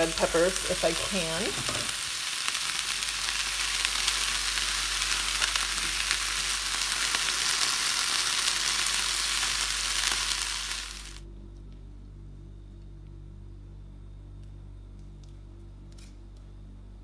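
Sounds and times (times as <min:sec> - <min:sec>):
vegetables sizzling in a frying pan: 0:00.0 - 0:11.2.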